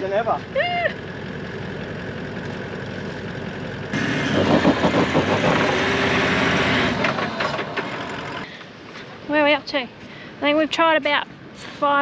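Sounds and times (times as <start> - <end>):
vehicle engine revving roughly: 3.9 - 8.4.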